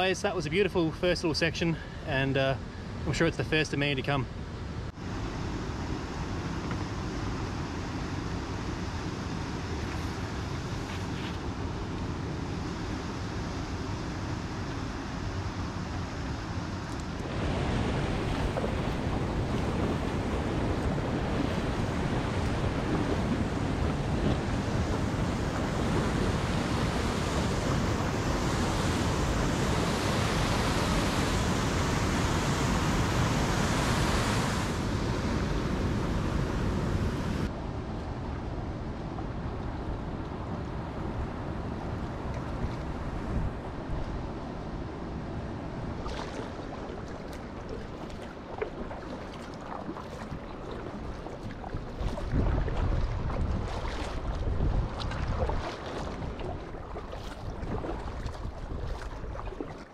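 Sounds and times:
wind on microphone: 0:16.7 - 0:59.9.

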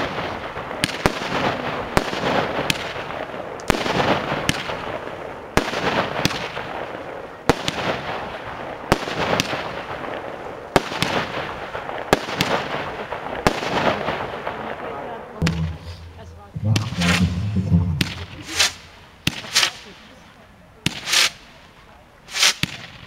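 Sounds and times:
firework bangs: 0:00.0 - 0:20.2, 0:20.8 - 0:23.0
firework hiss: 0:15.6 - 0:23.0.

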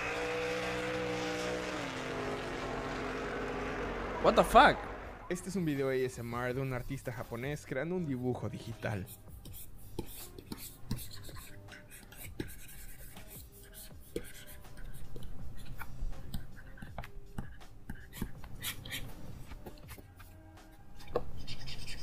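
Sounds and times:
stylus scratching and tapping: 0:08.8 - 0:20.4.

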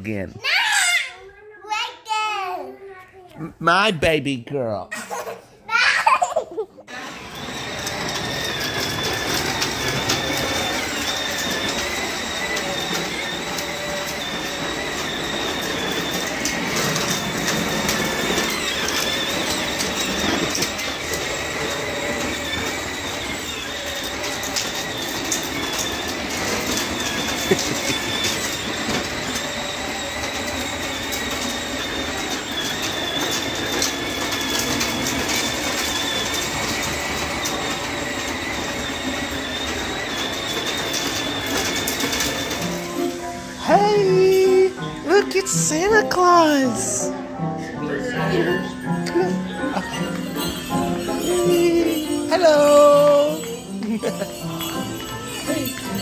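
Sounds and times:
plastic wheels rattling on concrete: 0:05.0 - 0:47.3, 0:48.3 - 0:56.0
electric motor whining: 0:06.9 - 0:56.0.

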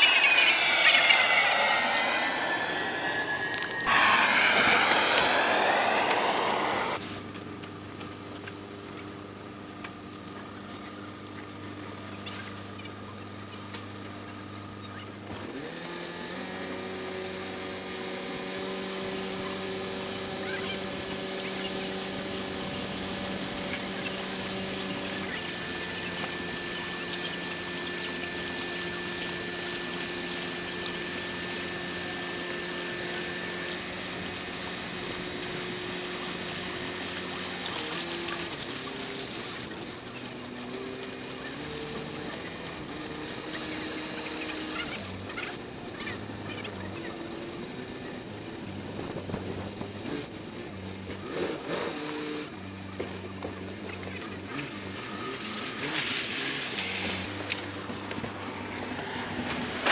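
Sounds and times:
water noise: 0:00.0 - 0:07.0.

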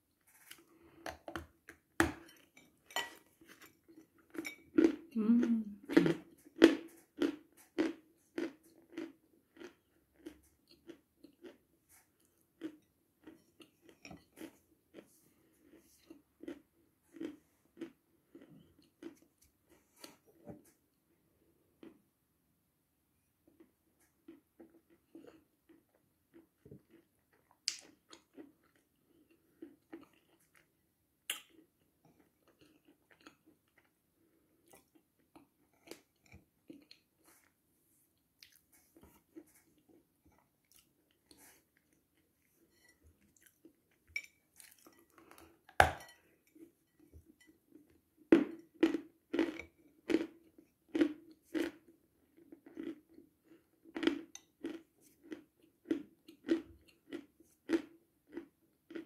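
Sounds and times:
crunchy chewing: 0:05.9 - 0:20.2, 0:48.5 - 0:59.0.

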